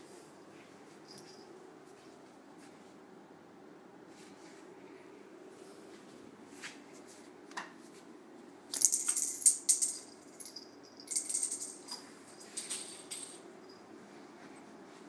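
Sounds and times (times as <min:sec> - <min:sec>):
bottle caps clattering: 0:08.8 - 0:13.5.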